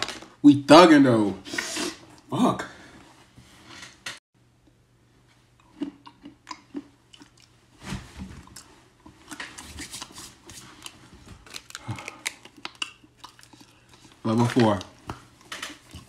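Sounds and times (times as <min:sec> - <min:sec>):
chewing and crunching nuts: 0:05.6 - 0:07.7, 0:08.4 - 0:16.0.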